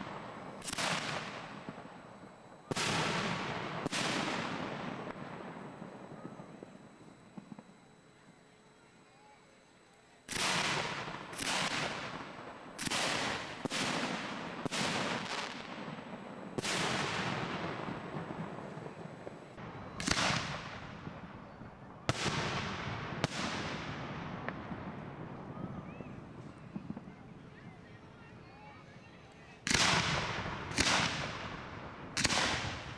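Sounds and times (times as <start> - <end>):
fireworks shell reports: 0.0 - 23.6, 24.4 - 31.5.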